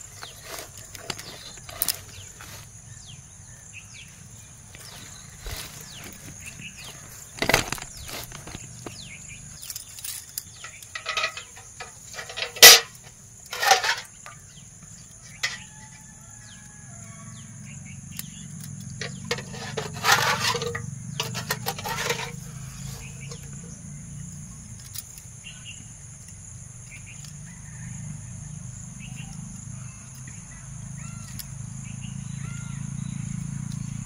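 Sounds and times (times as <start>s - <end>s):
insects droning: 0.0s - 34.0s
brass pot clanking against bucket: 10.6s - 14.4s, 15.4s - 15.7s, 19.0s - 22.4s.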